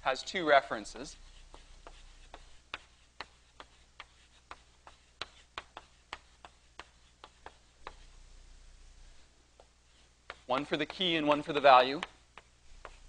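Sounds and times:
chalk tapping on blackboard: 1.1 - 8.1, 9.6 - 13.0.

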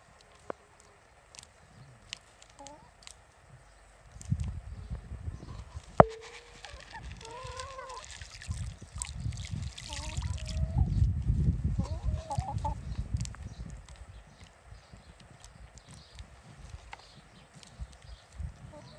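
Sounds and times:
hens clucking: 2.6 - 3.0, 5.5 - 9.1, 9.8 - 11.0, 11.8 - 12.9, 18.6 - 18.9.

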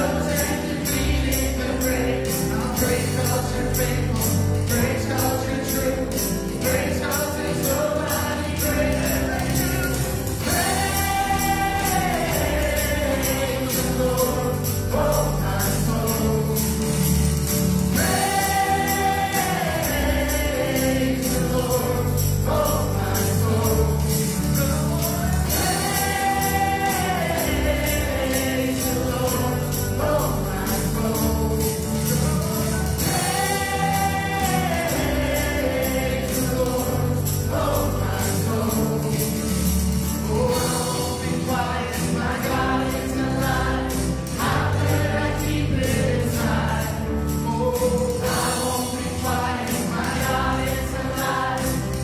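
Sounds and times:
drum kit: 8.7 - 29.5.

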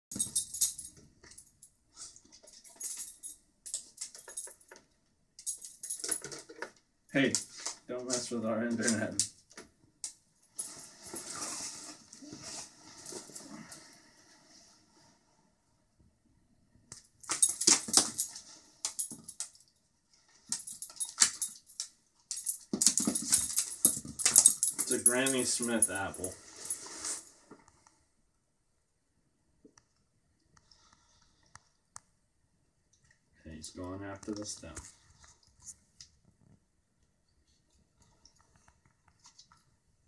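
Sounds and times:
dog collar tags jingling: 0.1 - 1.7, 2.4 - 4.8, 5.4 - 6.6, 17.2 - 19.7, 20.5 - 26.8.

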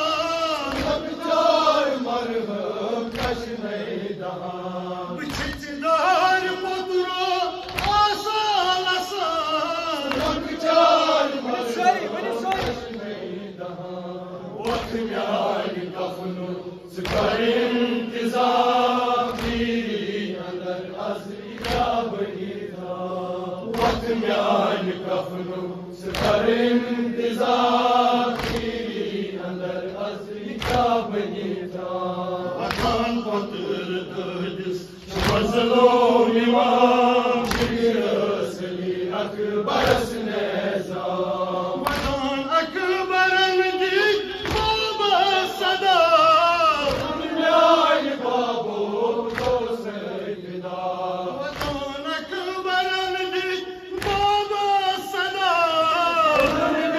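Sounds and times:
group of men chanting: 0.0 - 56.9
man chanting over microphone: 0.0 - 56.9
chest-beating slaps: 0.6 - 1.2, 3.0 - 3.6, 5.2 - 5.8, 7.6 - 8.2, 10.0 - 10.6, 12.4 - 13.2, 14.6 - 15.6, 17.0 - 17.7, 18.4 - 20.0, 21.5 - 22.2, 23.6 - 24.8, 26.0 - 26.8, 27.7 - 29.2, 30.4 - 31.2, 32.6 - 33.2, 35.0 - 35.9, 37.4 - 38.2, 41.8 - 42.4, 44.4 - 44.8, 46.8 - 47.3, 49.2 - 49.9, 51.4 - 52.0, 53.9 - 54.4, 56.3 - 56.8.

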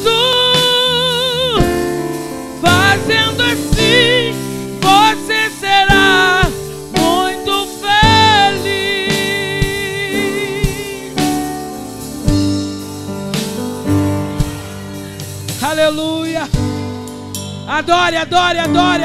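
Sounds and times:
woman singing with vibrato: 0.0 - 1.8, 2.6 - 11.4
live band playing: 0.0 - 19.0.

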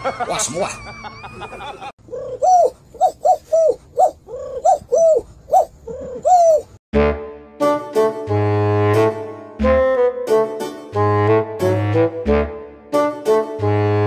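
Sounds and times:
cooing calls: 1.4 - 6.8
music with horn-like notes: 7.0 - 14.0.

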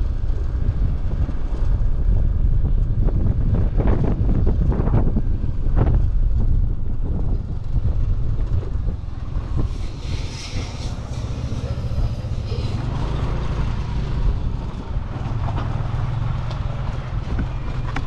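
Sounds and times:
motorcycle engine rumble: 0.0 - 18.0
wind buffeting microphone: 0.0 - 18.0
bright hiss: 9.6 - 12.8.

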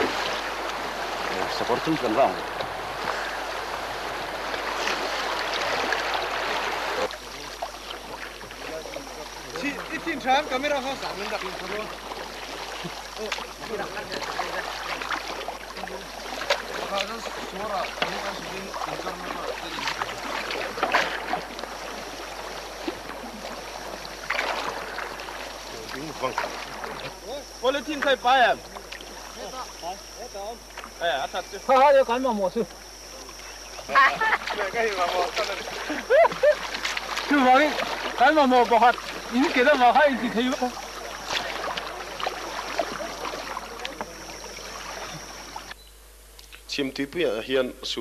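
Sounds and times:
whitewater river rushing: 0.0 - 7.4
loud water splashes: 0.0 - 31.4, 33.3 - 45.7.

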